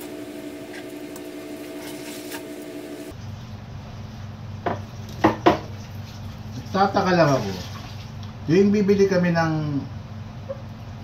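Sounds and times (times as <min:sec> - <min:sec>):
steady hum: 0:00.0 - 0:05.0.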